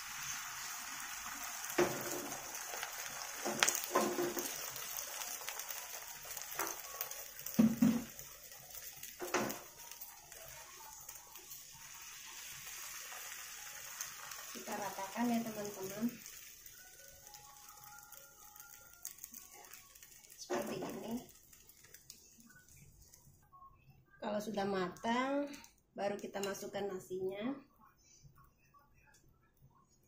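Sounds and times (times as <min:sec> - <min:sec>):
eggs sizzling in frying pan: 0:00.0 - 0:23.4.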